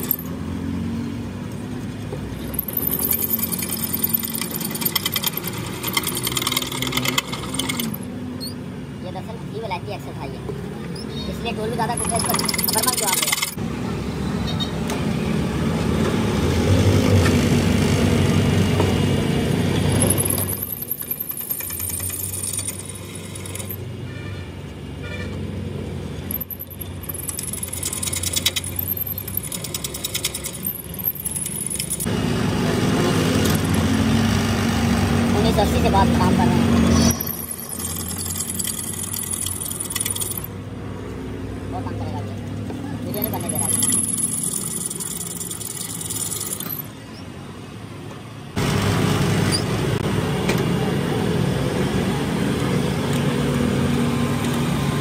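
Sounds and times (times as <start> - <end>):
metallic chatter of drill bit: 0.0 - 0.3, 2.4 - 8.6, 11.0 - 13.6, 19.9 - 23.8, 26.2 - 32.1, 33.4 - 34.1, 36.9 - 40.5, 43.1 - 46.9.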